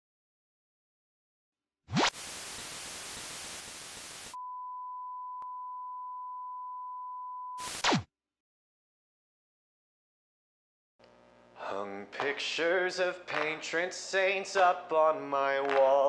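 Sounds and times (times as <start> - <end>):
hissing static: 1.9 - 4.4, 7.6 - 8.0
high beep tone: 4.4 - 7.7.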